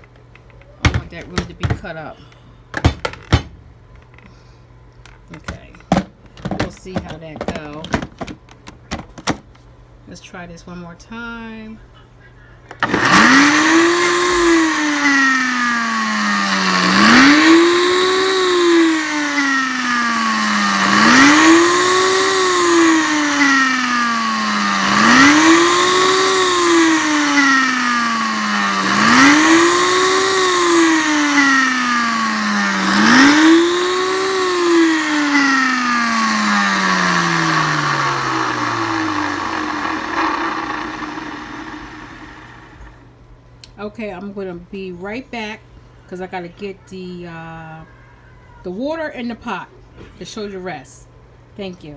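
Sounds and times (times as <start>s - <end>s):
blender motor chopping: 12.8s - 43.0s.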